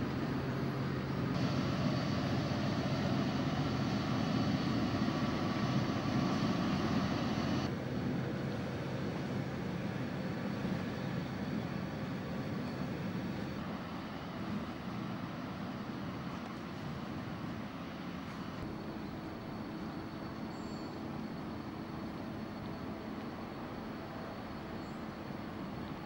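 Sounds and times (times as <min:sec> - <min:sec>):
boat engine droning: 0:00.0 - 0:16.3
wind: 0:00.0 - 0:26.0
water noise: 0:01.3 - 0:07.7.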